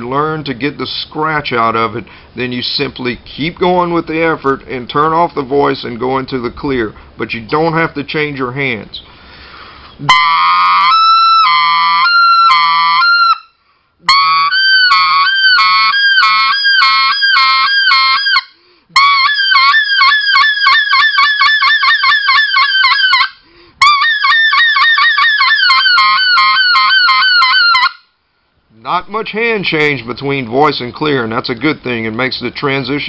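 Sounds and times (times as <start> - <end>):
goose call yodels: 14.1 - 27.9.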